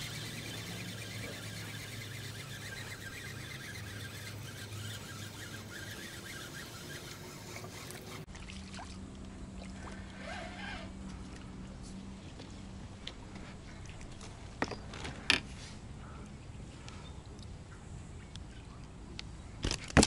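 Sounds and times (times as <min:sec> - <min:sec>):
fishing reel ticking: 0:00.0 - 0:08.3
water splashing: 0:00.0 - 0:10.2.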